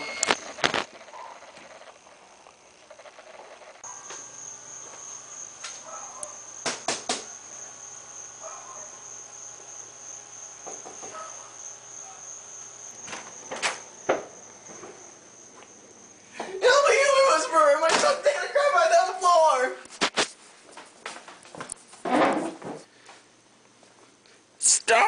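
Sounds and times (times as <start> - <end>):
high-pitched insect trill: 0.0 - 19.1
sharp knocks: 6.6 - 7.3.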